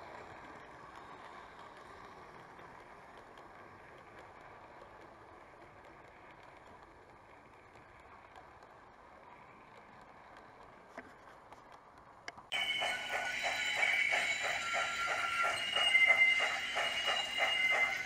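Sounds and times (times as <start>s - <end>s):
model train rumble: 12.5s - 18.0s.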